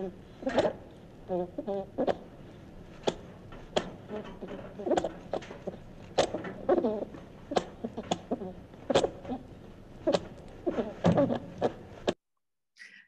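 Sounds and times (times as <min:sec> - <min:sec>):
dormouse sharp clicks: 0:03.0 - 0:09.4.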